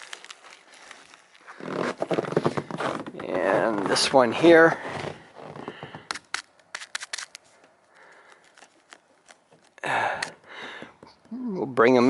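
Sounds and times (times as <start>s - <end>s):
snow crunching: 0.0s - 6.0s.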